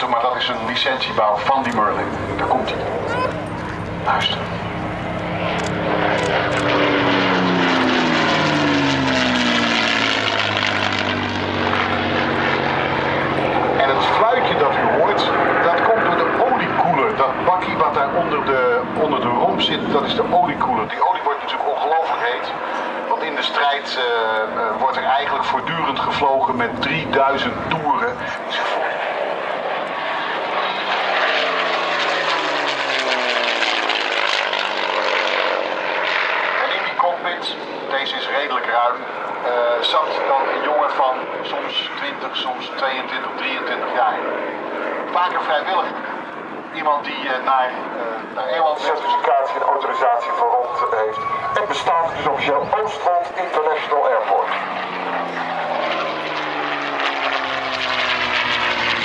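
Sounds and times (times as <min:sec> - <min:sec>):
propeller aircraft engine fly-past: 0:00.0 - 0:59.0
aircraft whistle: 0:48.9 - 0:52.2.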